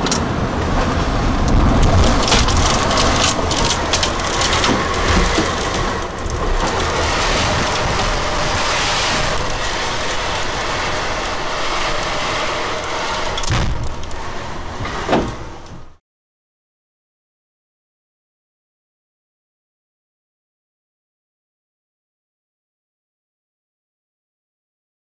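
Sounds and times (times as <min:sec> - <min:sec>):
knocks and rattles: 0:00.0 - 0:16.0
roar of wind and rain: 0:00.0 - 0:16.0.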